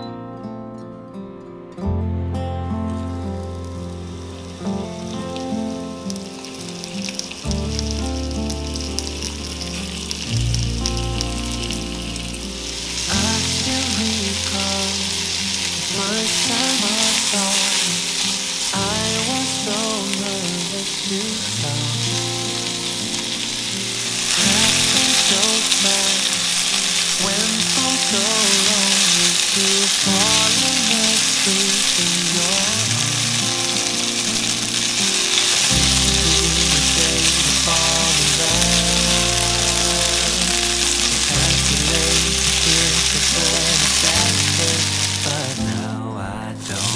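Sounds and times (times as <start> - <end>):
pork sizzling in frying pan: 2.9 - 45.8, 46.6 - 46.9.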